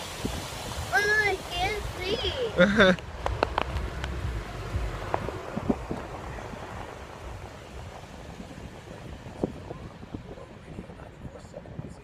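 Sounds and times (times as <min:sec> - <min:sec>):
muffled car wash rushing: 0:00.0 - 0:12.0.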